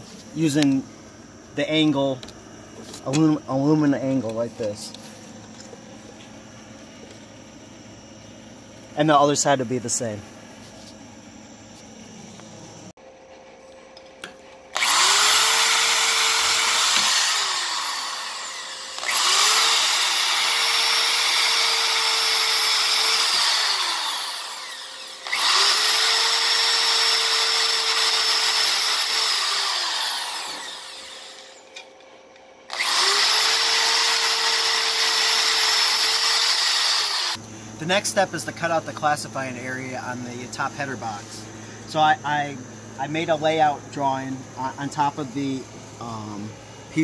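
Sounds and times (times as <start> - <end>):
electric drill boring holes: 14.7 - 31.7, 32.7 - 37.4.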